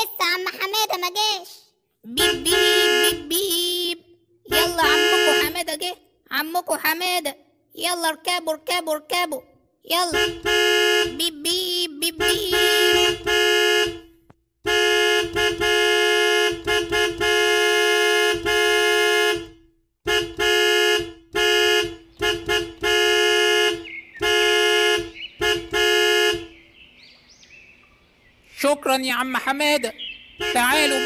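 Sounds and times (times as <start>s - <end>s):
cartoon bus horn honking: 2.1s - 3.6s, 4.5s - 6.0s, 9.9s - 26.7s, 30.1s - 31.0s.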